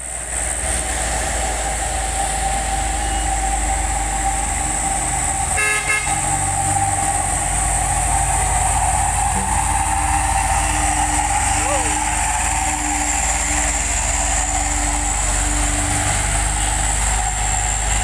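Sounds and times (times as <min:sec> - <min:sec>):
truck diesel engines climbing: 0:00.0 - 0:18.0
vehicle horn toot: 0:05.5 - 0:06.3.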